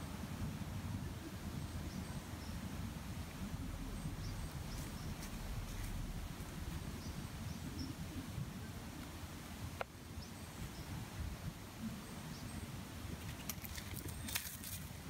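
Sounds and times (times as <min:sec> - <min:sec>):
steady low rumble: 0:00.0 - 0:12.3
faint bird chirps: 0:01.2 - 0:09.0.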